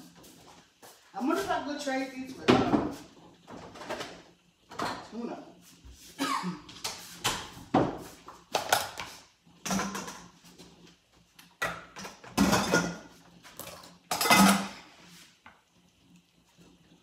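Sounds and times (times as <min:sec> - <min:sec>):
dishes and cutlery clattering: 0:11.6 - 0:13.1, 0:13.7 - 0:14.8.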